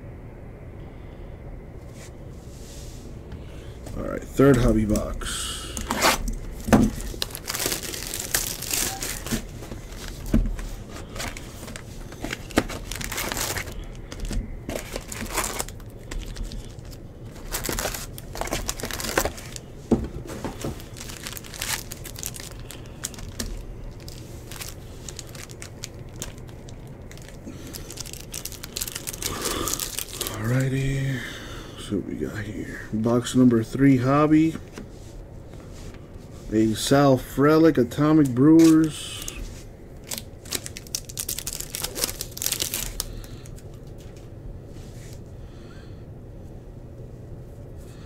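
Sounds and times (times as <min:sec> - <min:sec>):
plastic wrappers crinkling and tearing: 0:05.7 - 0:30.8, 0:38.2 - 0:44.1.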